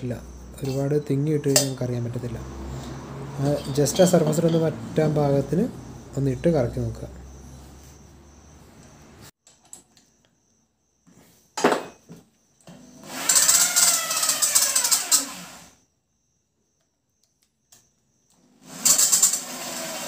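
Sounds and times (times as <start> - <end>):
electric drill whirring: 13.0 - 15.8, 18.6 - 20.0.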